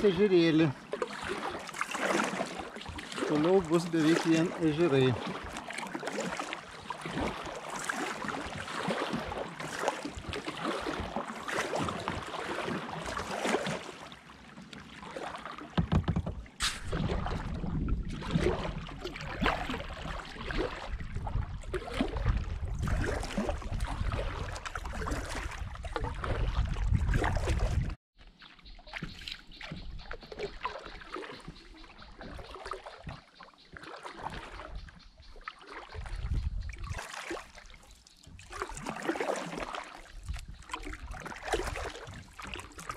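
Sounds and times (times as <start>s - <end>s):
kayak paddle splashing: 0.0s - 42.9s
water lapping along hull: 0.0s - 42.9s
wind buffeting microphone: 16.8s - 28.0s, 36.0s - 37.0s.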